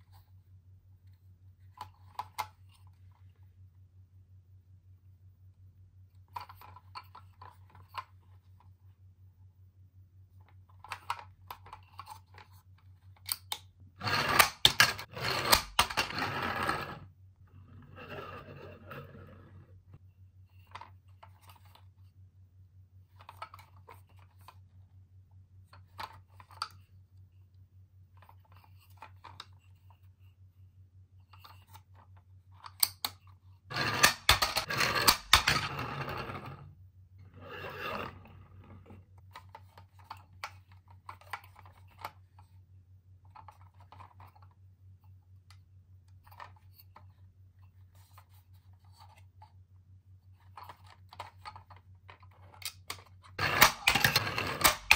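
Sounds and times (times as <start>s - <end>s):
low electrical hum: 0.0s - 54.9s
plastic toys scraping and rattling: 10.7s - 17.1s, 17.8s - 22.0s, 28.2s - 30.2s, 31.2s - 42.6s, 43.3s - 44.6s, 46.2s - 49.6s, 50.3s - 54.9s.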